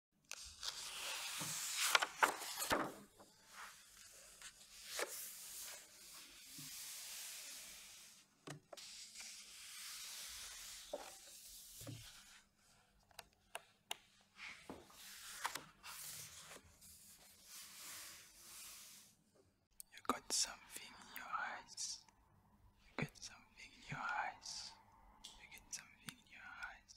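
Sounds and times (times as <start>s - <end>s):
book pages turning: 0.3s - 12.4s, 13.1s - 19.0s.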